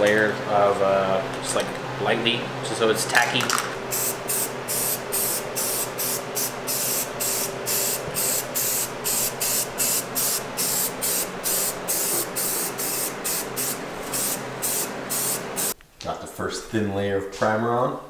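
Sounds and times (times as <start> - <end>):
aerosol spray can hissing: 3.9 - 15.8.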